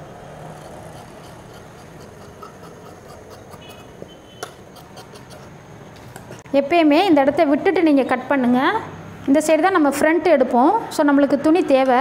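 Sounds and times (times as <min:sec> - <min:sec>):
scissors snipping fabric: 0:00.6 - 0:05.5.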